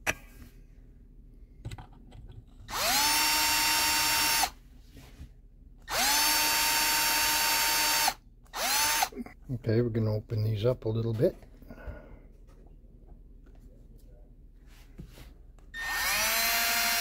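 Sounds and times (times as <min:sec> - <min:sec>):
electric drill whining: 0:02.7 - 0:04.6, 0:05.9 - 0:09.2, 0:15.8 - 0:17.0.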